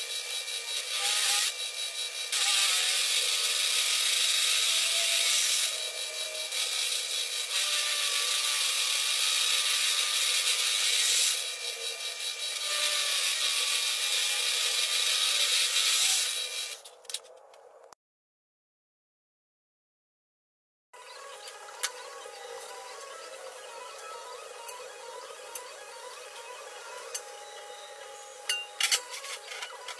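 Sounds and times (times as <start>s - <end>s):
drill press cutting steel: 0.0s - 16.8s, 21.4s - 29.9s
faint wavering squeal: 21.0s - 29.9s.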